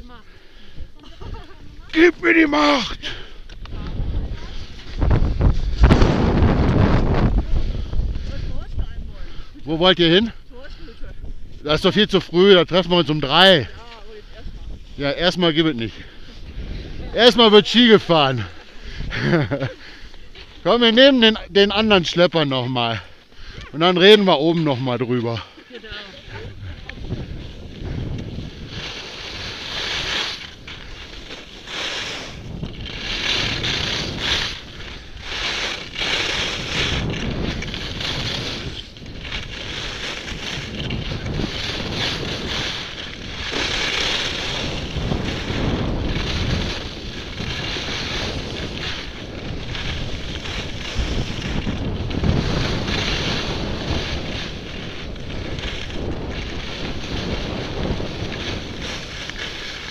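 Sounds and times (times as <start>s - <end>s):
skis scraping over snow: 0.0s - 59.9s
wind buffeting microphone: 0.0s - 59.9s.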